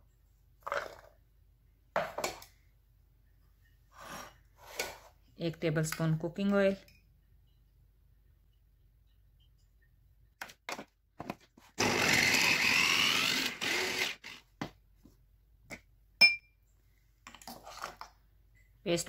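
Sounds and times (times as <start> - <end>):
electric chopper grinding: 11.8 - 14.4
sharp metal clink: 16.2 - 16.5.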